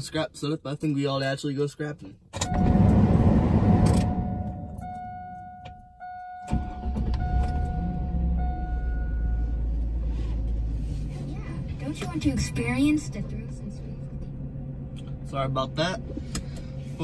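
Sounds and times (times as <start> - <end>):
dashboard warning chime: 2.4 - 3.0, 3.7 - 10.0.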